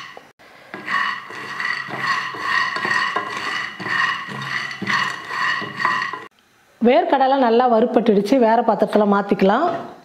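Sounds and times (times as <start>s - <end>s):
spatula stirring in a pan: 0.0s - 6.3s
peanuts rattling in a pan: 0.9s - 6.3s.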